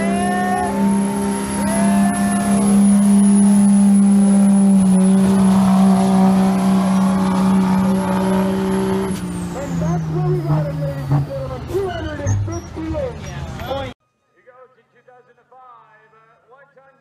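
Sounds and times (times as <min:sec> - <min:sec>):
diesel engine at high revs: 0:00.0 - 0:12.3.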